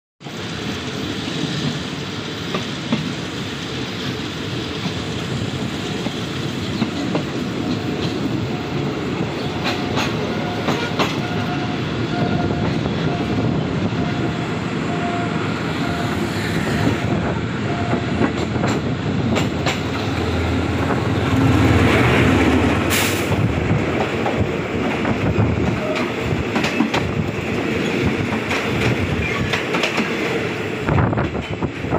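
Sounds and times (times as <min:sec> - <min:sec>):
train rumble and air rush: 0:00.2 - 0:31.9
wheels clacking over rail joints: 0:05.8 - 0:13.3, 0:17.7 - 0:30.4.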